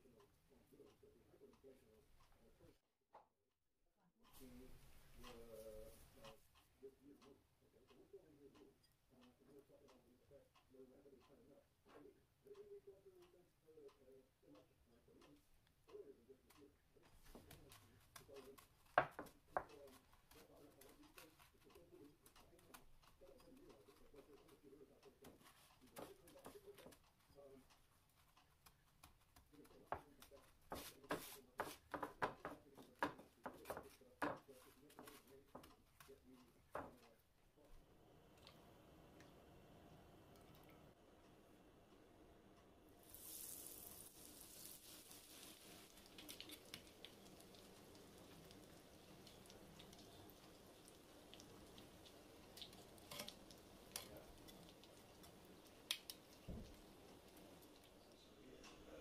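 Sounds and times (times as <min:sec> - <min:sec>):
hot oil crackling: 0:42.9 - 0:59.0
scratchy rustles of breadcrumbs: 0:43.0 - 0:55.0.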